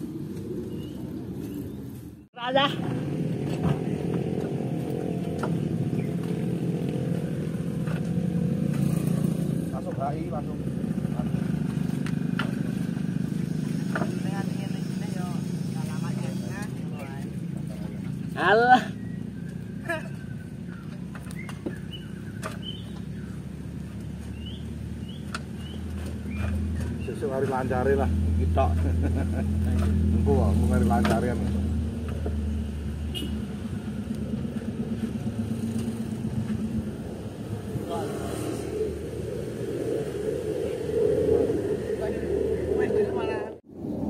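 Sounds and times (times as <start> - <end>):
small birds chirping: 0.4 - 2.6, 4.8 - 7.6, 13.3 - 27.7
diesel engine running: 2.4 - 43.7.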